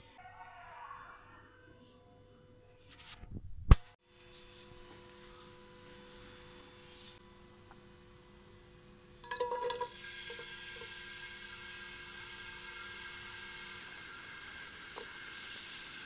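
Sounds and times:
steel cooking pot clattering: 9.2s - 10.4s
onions sizzling in hot oil: 9.2s - 16.0s.

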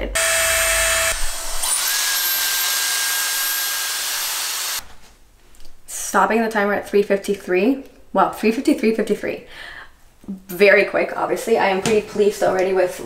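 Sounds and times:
high motor whine: 0.0s - 4.8s.

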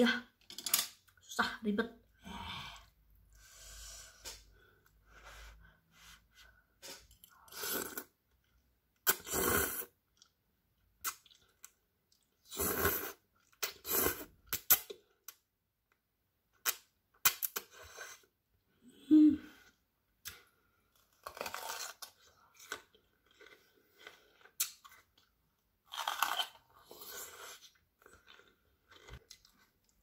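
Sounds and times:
noodles slurped: 6.8s - 8.2s.

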